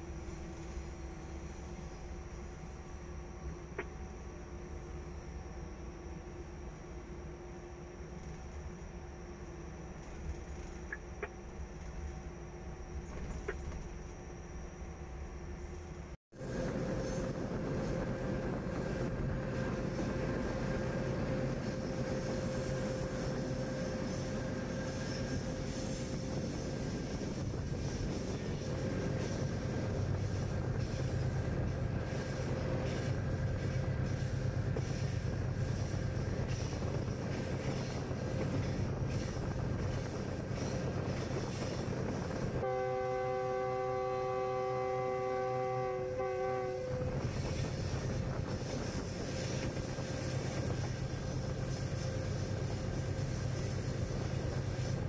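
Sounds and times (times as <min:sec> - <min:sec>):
diesel locomotive running: 0:00.0 - 0:55.0
train rolling on rails: 0:00.0 - 0:55.0
locomotive horn blast: 0:42.6 - 0:47.4.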